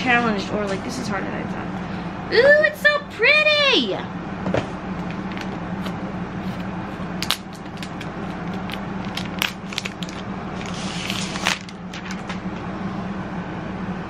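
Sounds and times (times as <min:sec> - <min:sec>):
plastic wrap crinkling: 0:07.2 - 0:12.3.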